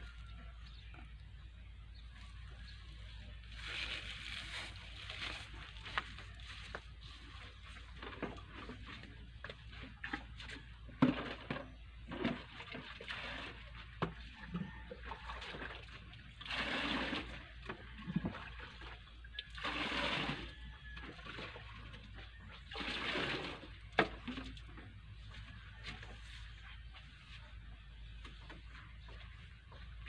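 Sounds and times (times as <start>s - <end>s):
water pouring into plastic bucket: 15.3s - 22.0s, 22.7s - 24.5s.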